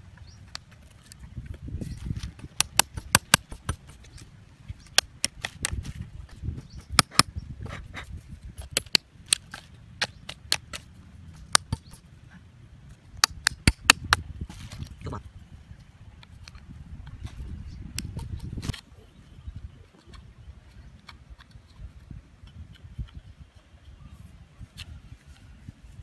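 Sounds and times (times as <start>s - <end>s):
hatchet striking nail: 2.3s - 4.0s, 6.7s - 7.3s, 8.6s - 12.0s, 13.2s - 14.2s
hatchet tapping plastic pipe: 2.3s - 4.1s, 6.7s - 7.3s, 11.5s - 12.0s, 13.2s - 14.2s.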